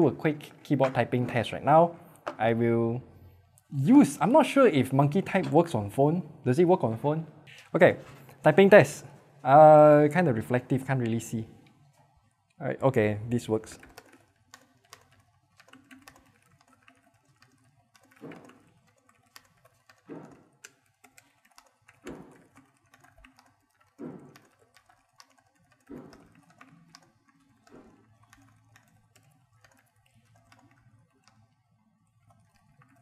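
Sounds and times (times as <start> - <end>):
soft keyboard typing: 12.9 - 33.0.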